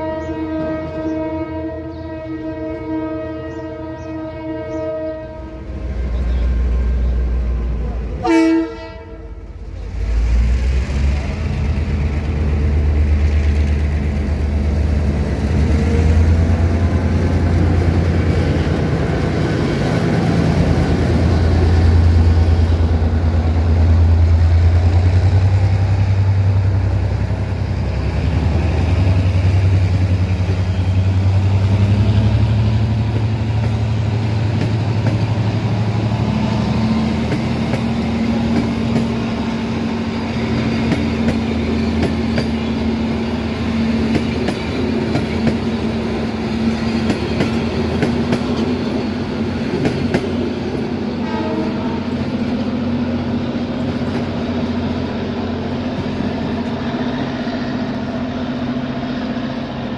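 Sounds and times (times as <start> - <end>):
train horn: 0.0 - 5.8, 8.2 - 9.5, 51.1 - 52.3
diesel train engine rumble: 0.0 - 59.9.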